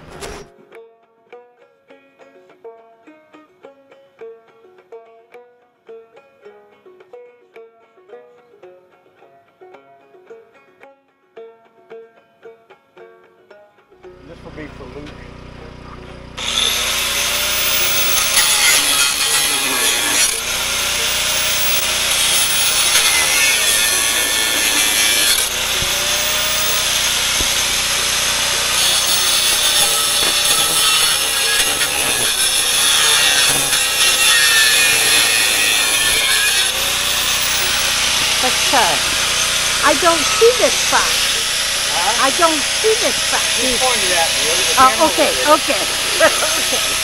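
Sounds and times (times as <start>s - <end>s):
angle grinder cutting metal: 14.1s - 47.0s.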